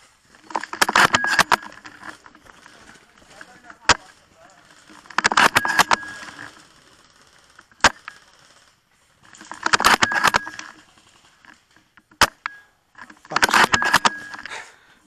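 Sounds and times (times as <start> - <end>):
airsoft rifle shots: 0.5 - 8.6, 9.4 - 11.4, 13.3 - 14.5.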